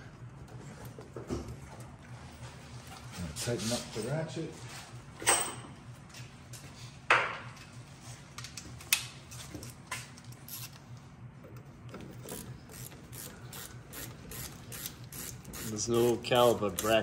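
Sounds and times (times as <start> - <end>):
hand ratchet clicking: 12.3 - 17.0.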